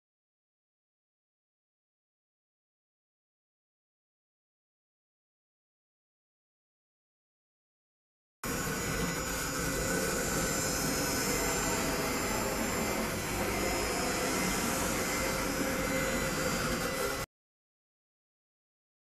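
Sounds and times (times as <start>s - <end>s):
router spindle hissing and whining: 8.5s - 17.3s.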